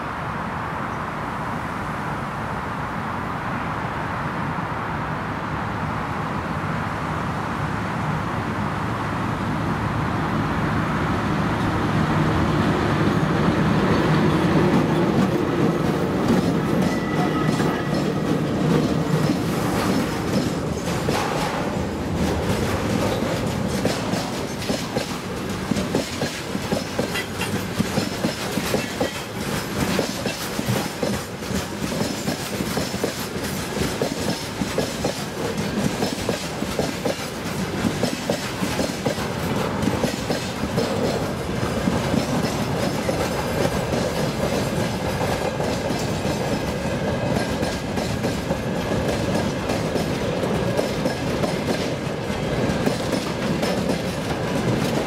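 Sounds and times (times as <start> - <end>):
freight train rumble: 0.0 - 55.0
train wheels clattering over rail joints: 13.0 - 55.0.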